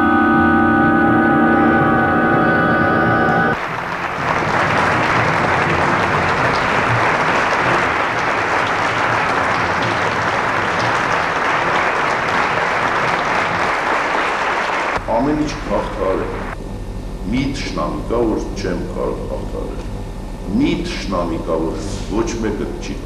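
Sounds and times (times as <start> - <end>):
audience applauding: 3.5 - 16.6.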